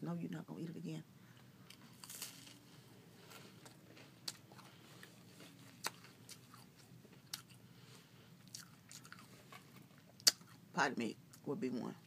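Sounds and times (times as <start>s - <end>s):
chewing snack: 3.2s - 7.6s, 8.4s - 10.6s.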